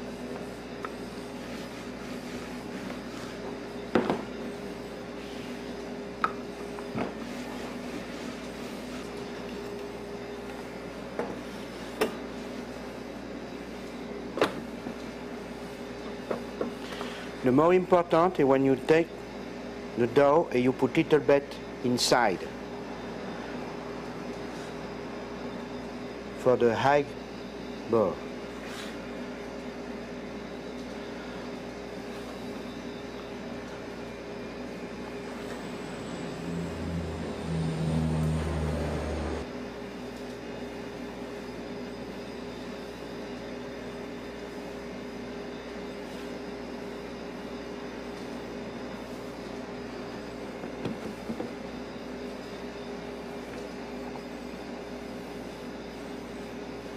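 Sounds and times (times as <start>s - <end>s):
machinery hum: 21.3s - 56.9s
kitchen equipment hum: 31.0s - 39.5s
held low tones: 35.5s - 39.5s.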